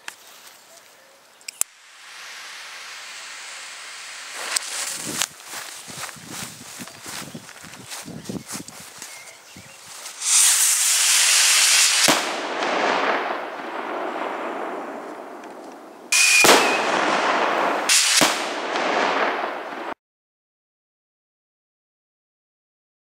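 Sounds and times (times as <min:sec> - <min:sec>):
firework rocket hissing: 0:01.7 - 0:06.7, 0:09.9 - 0:15.4, 0:16.1 - 0:20.0
firework bangs with echo: 0:10.2 - 0:20.0.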